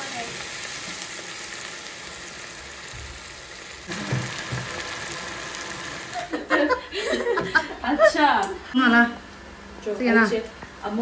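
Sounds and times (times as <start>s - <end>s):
vegetables deep-frying in oil: 0.0s - 6.5s.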